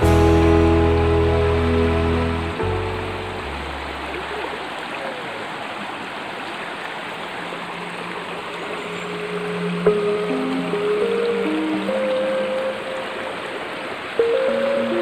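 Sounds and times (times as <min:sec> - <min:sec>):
background music: 0:00.0 - 0:04.1, 0:09.0 - 0:15.0
river rushing over rocks: 0:03.0 - 0:15.0.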